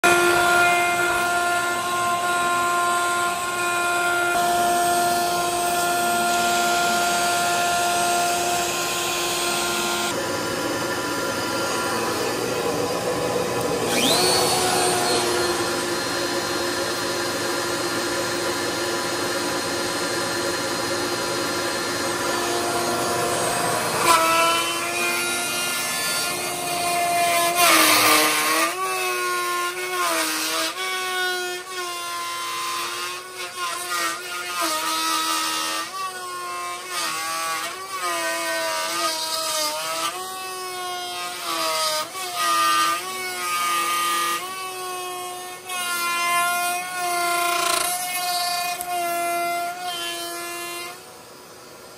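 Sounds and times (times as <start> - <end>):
metal cutting noise: 0.0 - 51.1
machine spindle whine: 8.3 - 27.3.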